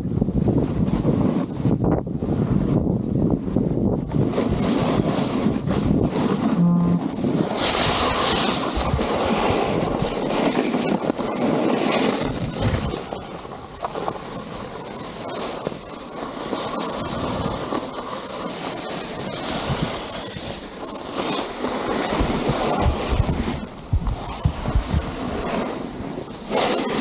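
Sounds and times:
wind buffeting microphone: 0.0 - 11.4, 22.0 - 26.5
snowboard scraping over snow: 0.1 - 27.0.

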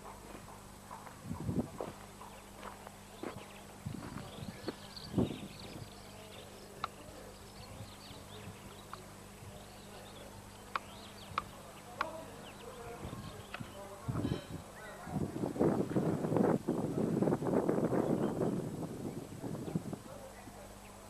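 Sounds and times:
steady low hum: 0.0 - 21.0
sharp clicks: 6.8 - 7.0, 10.7 - 12.2.

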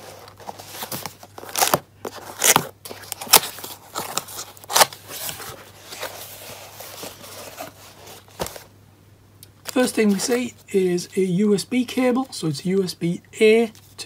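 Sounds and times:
cardboard crackles: 0.0 - 8.7
cardboard scraping and rustling: 0.0 - 8.7.

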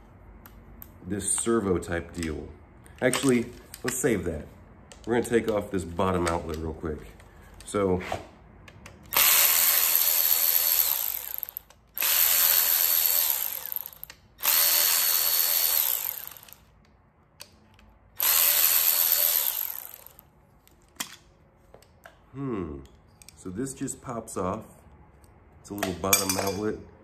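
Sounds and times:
electric ratchet whining: 9.1 - 16.7, 18.2 - 20.2.

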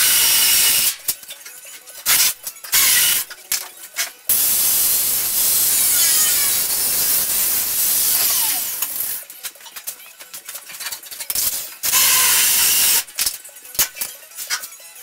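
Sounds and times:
cordless drill bursts: 0.0 - 0.9
cutting wheel cutting sheet metal: 0.0 - 1.0, 2.1 - 3.3, 4.3 - 9.2, 11.8 - 13.1.

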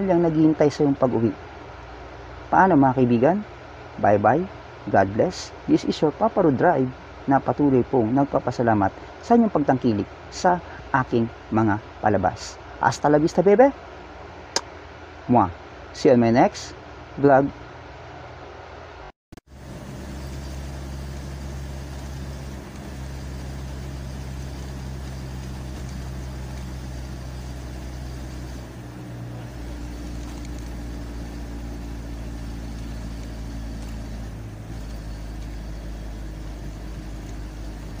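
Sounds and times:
vehicle engine humming: 19.5 - 38.0.

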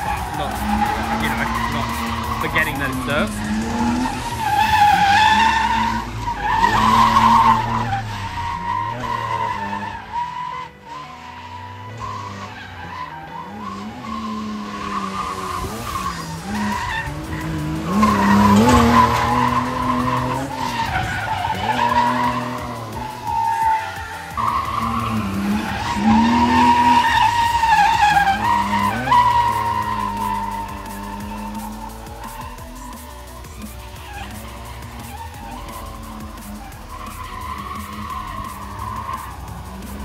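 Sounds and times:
car engine revving: 0.0 - 40.0
tyres squealing on asphalt: 0.0 - 40.0.

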